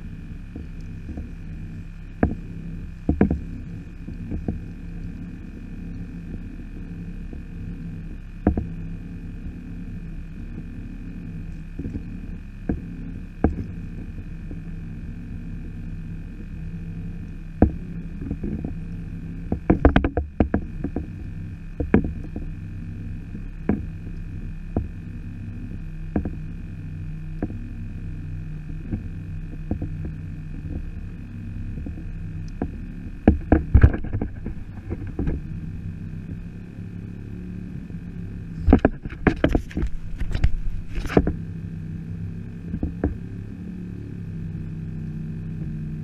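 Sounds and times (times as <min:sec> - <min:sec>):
faint constant whine: 0:00.0 - 0:46.0
steady low rumble: 0:00.0 - 0:46.0
gear knocking on plastic kayak: 0:02.1 - 0:04.7, 0:08.4 - 0:08.8, 0:11.8 - 0:13.8, 0:17.6 - 0:18.8, 0:19.5 - 0:22.5, 0:23.4 - 0:25.0, 0:26.1 - 0:26.5, 0:28.6 - 0:30.9, 0:31.6 - 0:36.4, 0:37.8 - 0:41.4.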